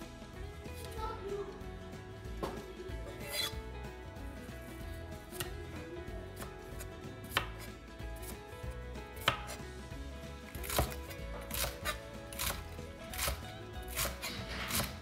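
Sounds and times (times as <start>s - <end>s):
faint background music: 0.0s - 15.0s
knife chopping on wooden board: 6.4s - 9.6s, 10.4s - 15.0s.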